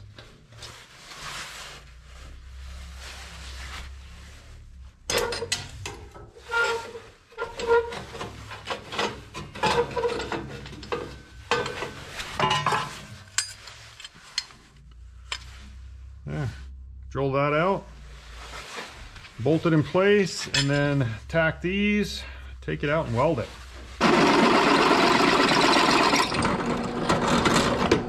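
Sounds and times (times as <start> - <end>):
cloth rubbing: 0.4 - 5.0, 17.9 - 22.1, 22.8 - 24.0.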